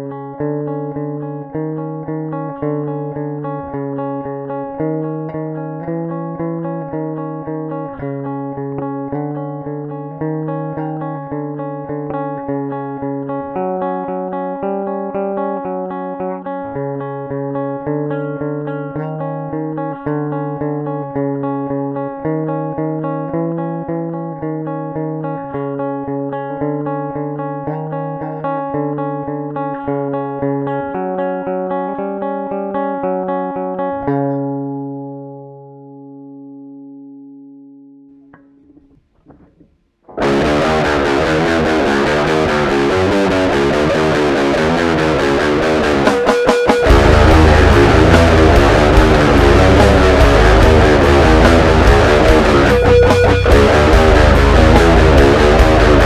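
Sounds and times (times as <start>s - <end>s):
bass guitar: 0.0s - 37.6s, 38.2s - 56.0s
heavy metal guitar riff: 40.1s - 56.0s.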